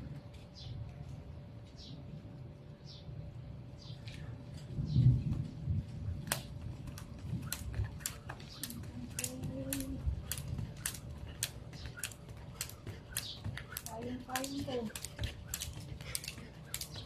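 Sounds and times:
jump rope slapping concrete: 6.2s - 17.0s.

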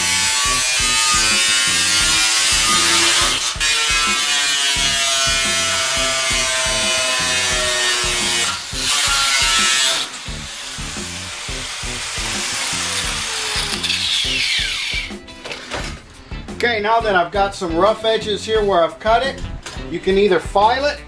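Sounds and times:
angle grinder cutting sheet steel: 0.0s - 15.2s.

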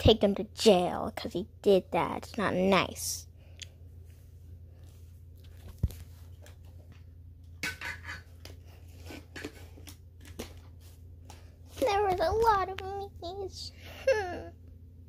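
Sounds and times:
low steady hum: 0.0s - 15.0s
soft rustles and clicks: 3.6s - 7.5s.

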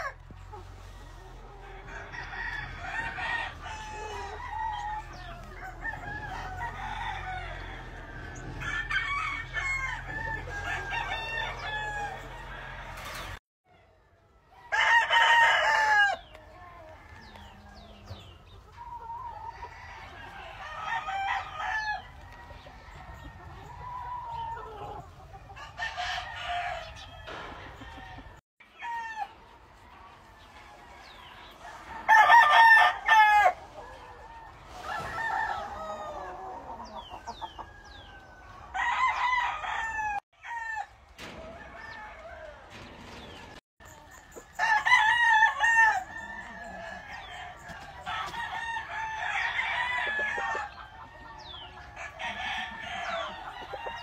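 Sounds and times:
chickens clucking: 0.0s - 28.4s, 29.2s - 40.2s, 40.8s - 54.0s
rooster crowing: 1.7s - 12.8s, 14.7s - 16.2s, 37.5s - 42.8s, 44.6s - 50.8s.

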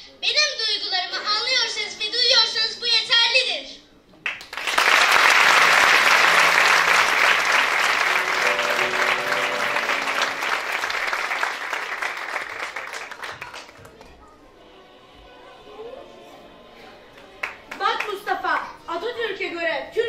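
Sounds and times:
audience applauding: 4.2s - 14.1s, 17.4s - 18.2s
quiet music: 8.0s - 11.4s.

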